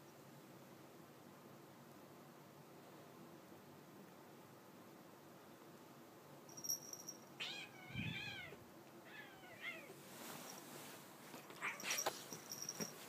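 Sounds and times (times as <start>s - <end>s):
cat meowing: 7.4s - 10.0s, 11.6s - 12.1s
bedding rustling and scratching: 10.0s - 13.0s.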